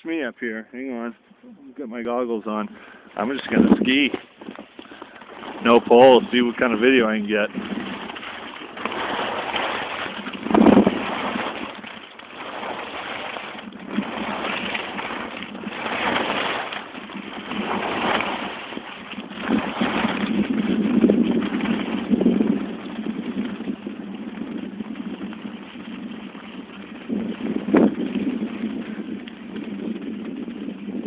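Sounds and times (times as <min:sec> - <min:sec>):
wind on microphone: 0:02.1 - 0:31.0
skis scraping over snow: 0:02.4 - 0:31.0.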